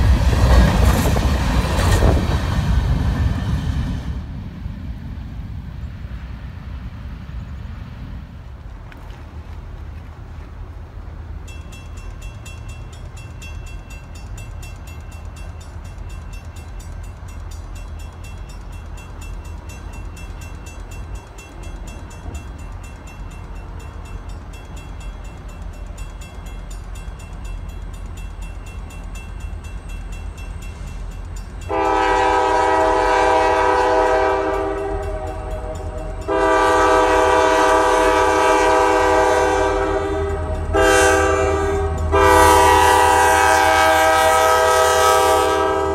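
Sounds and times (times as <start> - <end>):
diesel locomotive rumbling: 0.0 - 45.9
crossing warning bell ringing: 11.4 - 45.9
locomotive air horn blasts: 31.7 - 45.9.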